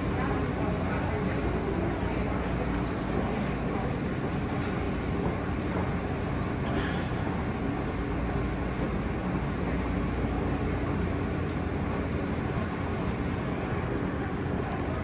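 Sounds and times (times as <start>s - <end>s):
subway train humming: 0.0s - 15.0s
faint high whine: 6.7s - 15.0s.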